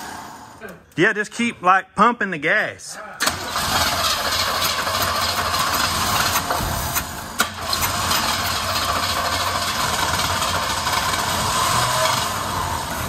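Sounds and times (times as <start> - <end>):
engine cranking on starter: 3.2 - 13.0.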